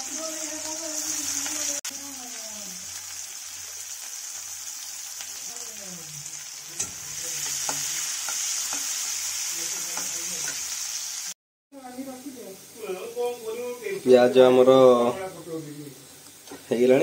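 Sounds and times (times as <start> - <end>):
onions sizzling in hot oil: 0.0 - 17.0
metal spatula scraping pan: 6.7 - 10.8.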